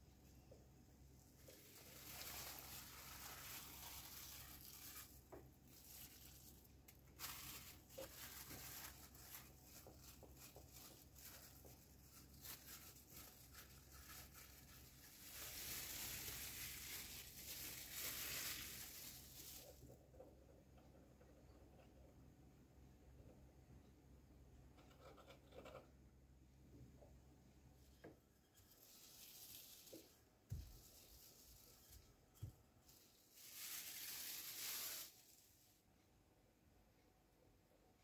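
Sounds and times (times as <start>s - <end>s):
plastic sheet crinkling: 1.3s - 20.0s, 28.5s - 35.5s.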